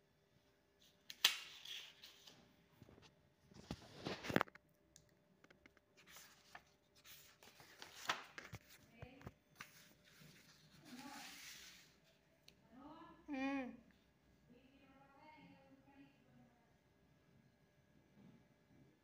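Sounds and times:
paper sheets rustling: 0.8s - 2.9s, 3.5s - 4.5s, 6.0s - 12.0s.

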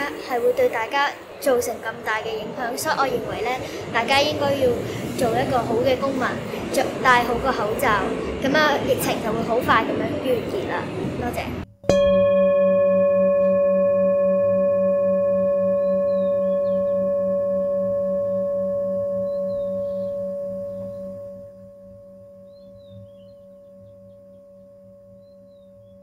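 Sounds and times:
deep struck bell ringing: 11.8s - 26.0s.

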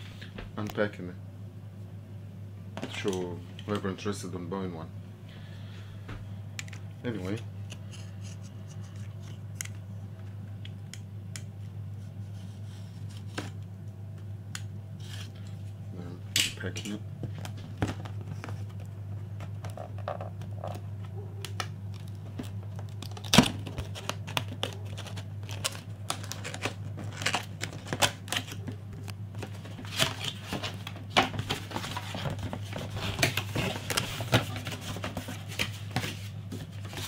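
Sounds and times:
steady low hum: 0.0s - 37.0s
cardboard packaging being handled: 21.9s - 28.8s, 29.4s - 37.0s.

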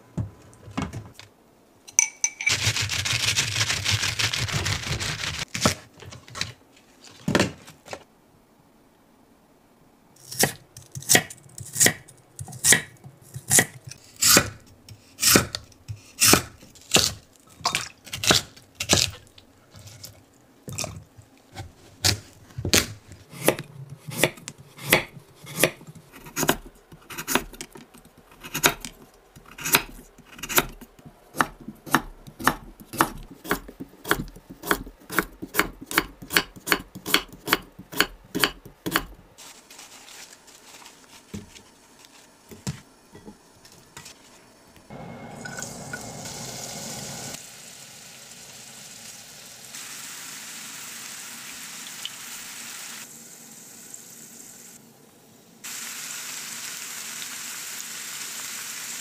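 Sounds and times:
knife chopping on wooden board: 31.4s - 39.2s.

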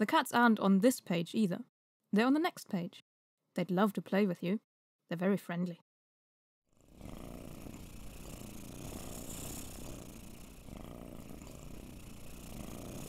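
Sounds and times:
cat purring: 6.8s - 13.0s.

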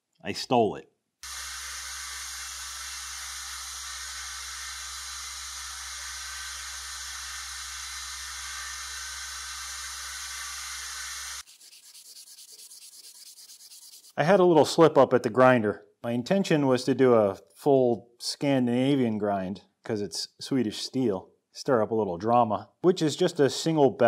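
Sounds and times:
belt grinder motor hum: 1.2s - 11.4s
knife blade grinding hiss: 1.2s - 14.1s
blade rubbing on sharpening stone: 6.3s - 14.2s.

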